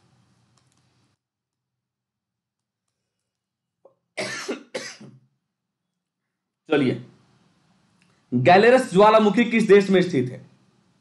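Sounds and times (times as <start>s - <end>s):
man coughing: 4.2s - 5.2s.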